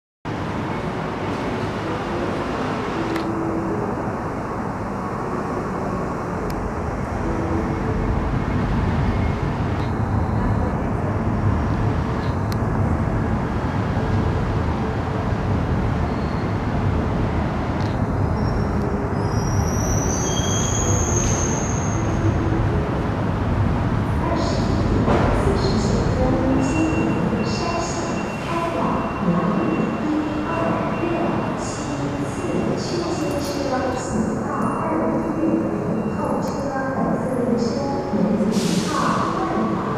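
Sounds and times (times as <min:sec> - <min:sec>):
rumbling station hall ambience: 0:00.3 - 0:39.9.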